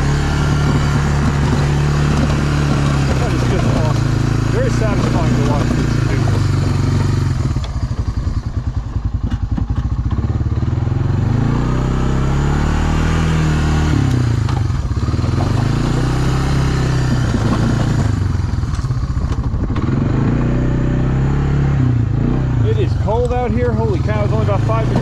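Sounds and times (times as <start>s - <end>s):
atv engine revving: 0.0s - 25.0s.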